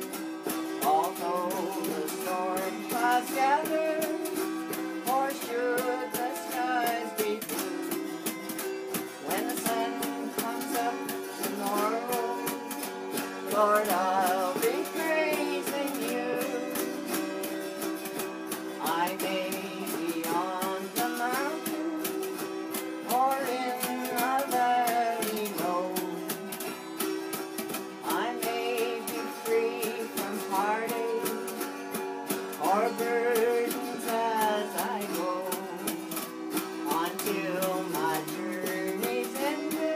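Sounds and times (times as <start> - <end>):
autoharps strummed: 0.0 - 39.9
woman singing: 0.8 - 8.4, 9.2 - 18.2, 18.8 - 26.7, 28.0 - 39.9.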